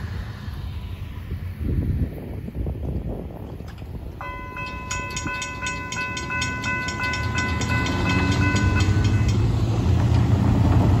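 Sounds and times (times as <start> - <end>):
rumble of vehicles driving: 0.0 - 11.0
railroad crossing bell ringing: 4.1 - 10.2.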